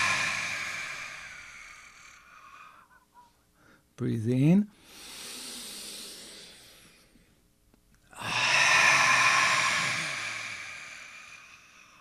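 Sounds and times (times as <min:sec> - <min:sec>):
man exhaling breathy ah: 0:00.0 - 0:03.0, 0:08.1 - 0:12.0
man inhaling: 0:04.8 - 0:07.3, 0:08.1 - 0:12.0.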